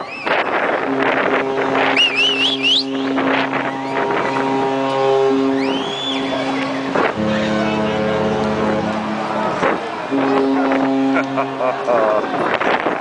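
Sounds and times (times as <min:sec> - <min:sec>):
wind noise: 0:00.0 - 0:13.0
ship horn playing a tune: 0:00.3 - 0:13.0
shrill warbling whistles: 0:01.9 - 0:03.1, 0:05.6 - 0:06.8.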